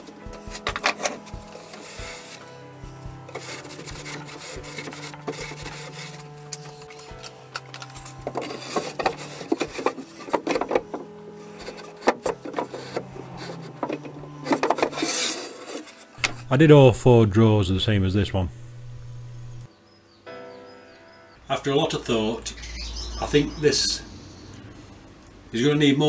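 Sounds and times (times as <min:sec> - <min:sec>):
wooden drawer scraping: 0:00.0 - 0:16.5.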